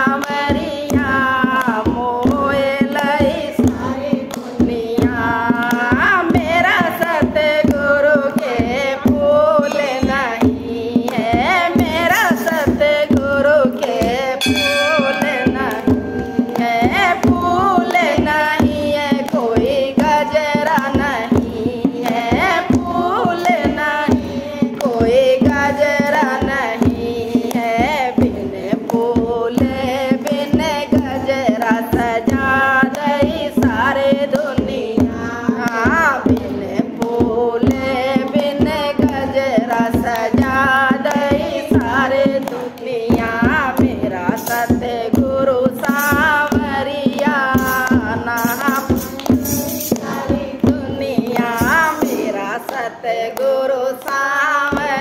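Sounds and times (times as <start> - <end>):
steady percussive beat: 0.0 - 53.0
women singing together: 0.0 - 55.0
hand-clapping: 0.1 - 55.0.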